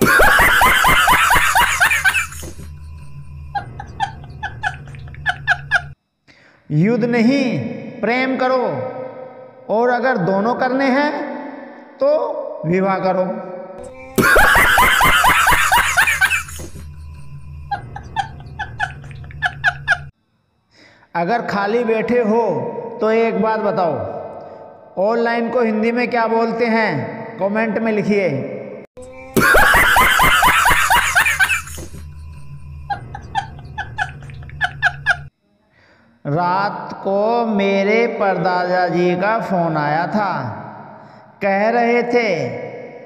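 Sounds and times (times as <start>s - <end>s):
low hum: 0.0s - 6.0s, 13.8s - 20.1s, 31.1s - 35.3s
man laughing hard: 0.0s - 6.0s, 13.8s - 20.1s, 29.2s - 35.3s.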